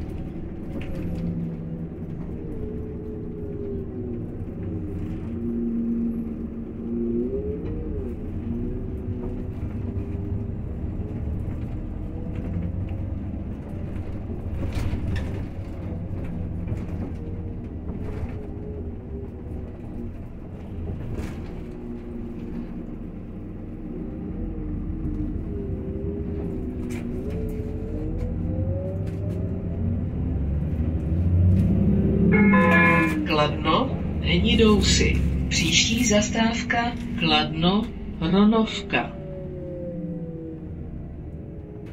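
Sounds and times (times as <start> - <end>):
body clicks and rattles: 0.0 - 5.5, 7.6 - 23.0, 26.2 - 29.7
bus engine running: 0.0 - 41.9
whine gliding in pitch: 32.1 - 33.8.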